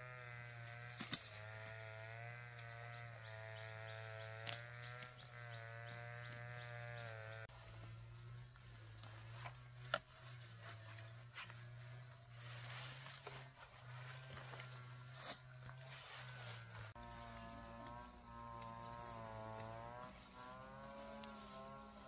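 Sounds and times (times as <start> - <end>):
leafy shoots rustling and crackling: 7.5 - 18.9.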